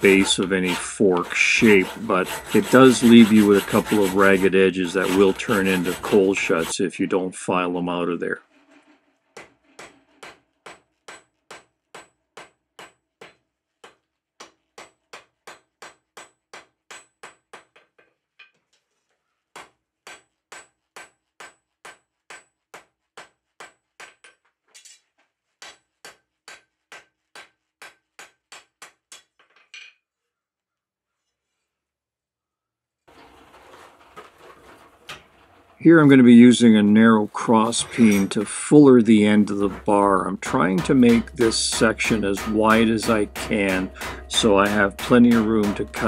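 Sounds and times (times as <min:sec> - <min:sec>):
hammer blows on anvil: 0:00.0 - 0:06.7, 0:36.0 - 0:46.0
anvil ringing: 0:37.4 - 0:46.0.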